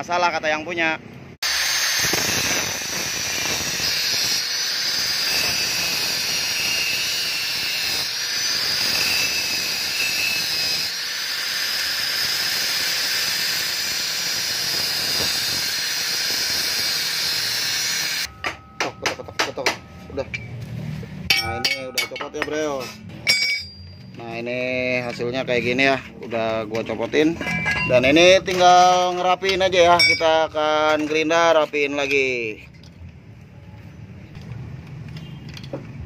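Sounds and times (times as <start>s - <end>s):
angle grinder cutting metal: 1.4s - 20.5s.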